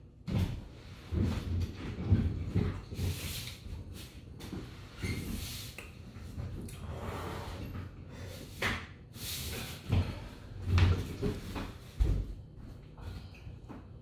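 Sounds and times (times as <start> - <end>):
man breathing hard: 6.7 - 10.7
footsteps on hardwood floor: 9.9 - 14.0.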